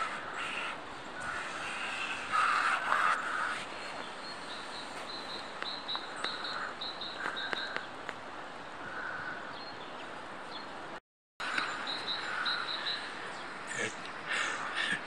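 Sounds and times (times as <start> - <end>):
crow cawing: 0.0 - 3.6, 6.3 - 7.8, 8.8 - 9.5, 12.2 - 13.0.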